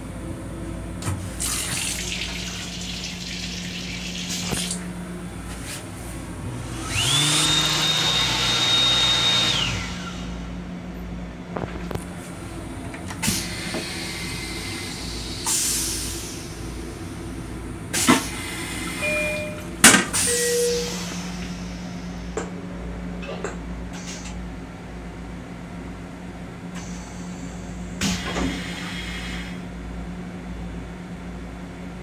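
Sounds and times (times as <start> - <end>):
electric hand dryer blowing: 6.7 - 10.3.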